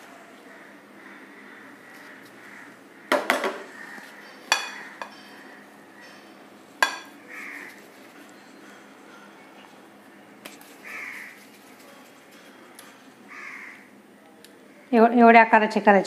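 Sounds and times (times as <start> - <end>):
kitchenware clattering: 3.1 - 9.9.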